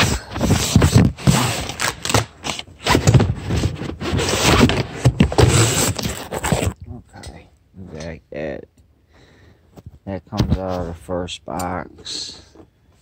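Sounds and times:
cardboard and paper rustling: 0.0s - 6.8s.

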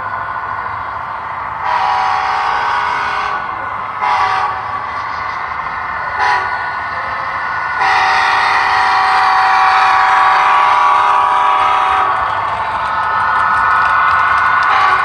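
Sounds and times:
model locomotive horn blasts: 1.6s - 4.8s, 6.2s - 6.6s, 7.8s - 12.2s, 14.7s - 15.0s.

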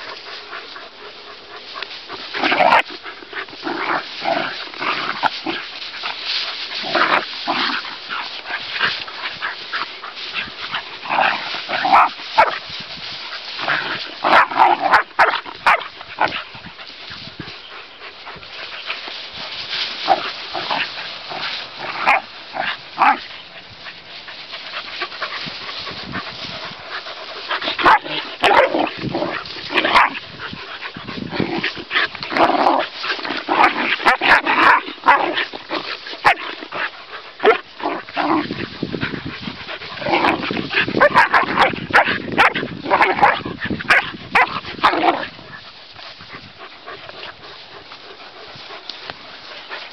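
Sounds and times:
dogs barking: 10.7s - 12.6s, 14.2s - 16.4s, 27.5s - 30.2s, 36.2s - 38.5s, 40.0s - 45.3s.

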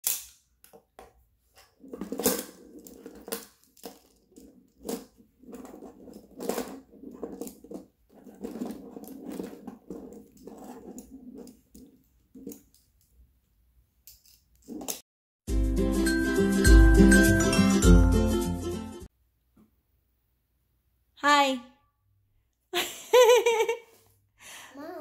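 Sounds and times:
plastic tiles clicking and clattering: 0.0s - 13.1s
tiles rubbing and sliding: 1.1s - 12.9s, 14.3s - 15.0s.

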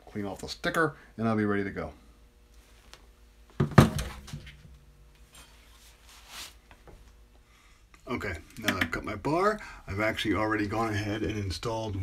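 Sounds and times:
saw set down on wooden bench: 3.6s - 4.5s.

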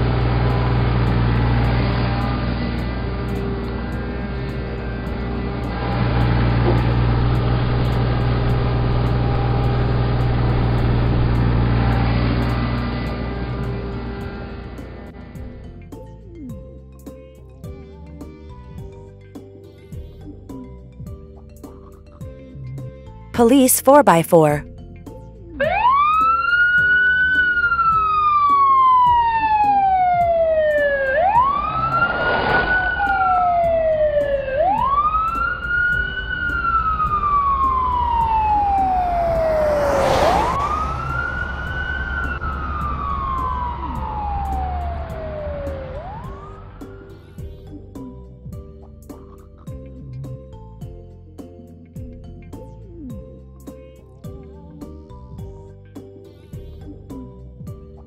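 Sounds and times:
background music with steady beat: 13.6s - 31.8s, 33.0s - 39.6s, 42.2s - 58.0s
police siren wailing: 25.6s - 47.0s
brief rushing noises: 31.6s - 33.6s.

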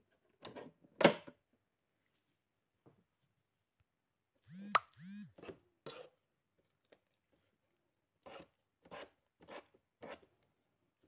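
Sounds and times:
utensil scraping dough in steel bowl: 8.2s - 10.3s.

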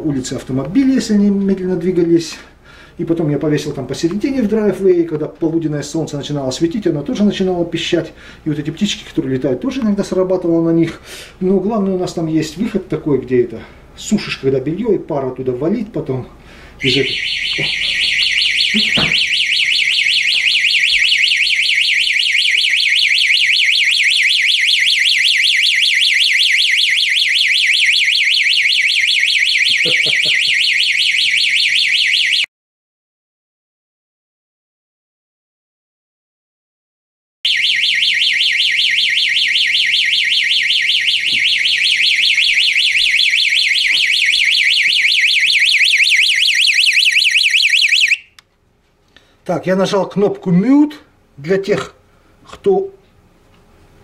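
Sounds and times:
warbling electronic siren: 16.8s - 32.5s, 37.5s - 48.4s.

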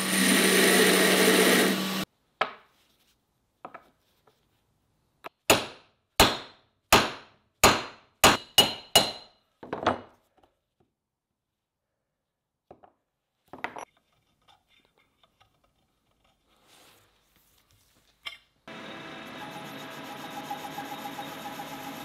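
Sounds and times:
belt grinder running: 0.0s - 2.0s, 18.7s - 22.0s
hammer striking brass on wood: 5.5s - 9.3s.

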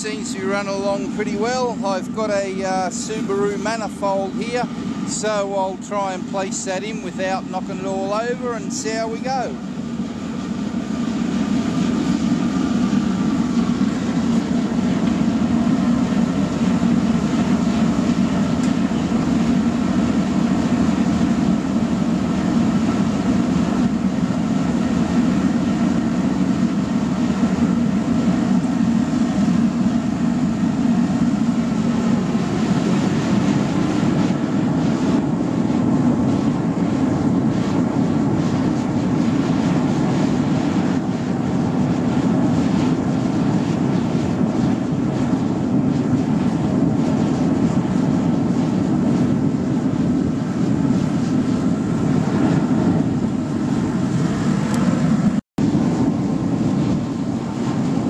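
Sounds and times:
burner flame and blower roaring: 0.0s - 58.0s.

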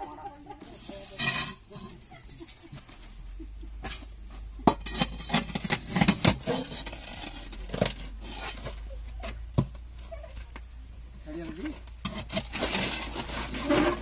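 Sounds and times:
metal rod scraping ceramic toilet: 4.8s - 8.8s, 12.0s - 14.0s.

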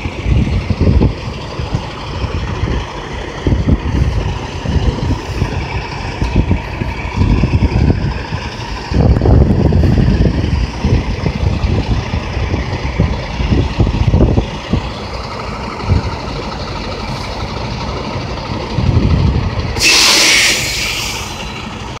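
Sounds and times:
low rumble: 0.0s - 22.0s
truck air brake hiss: 19.8s - 21.7s.

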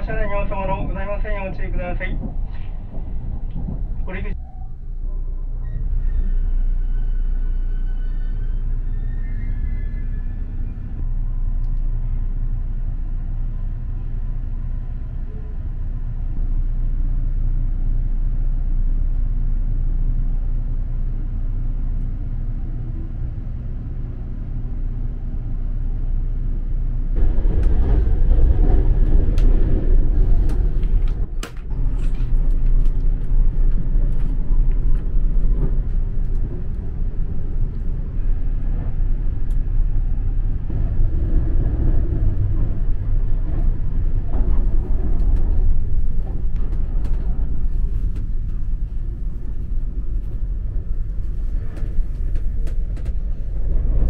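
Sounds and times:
train low rumble: 0.0s - 54.0s.

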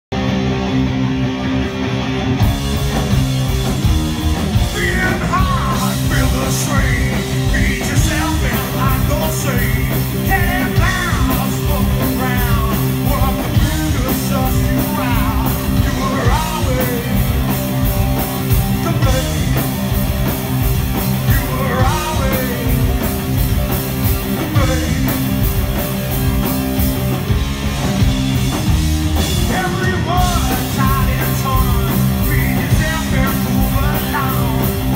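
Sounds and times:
rock band playing: 0.1s - 34.9s
person singing: 4.7s - 17.5s, 21.2s - 23.1s.

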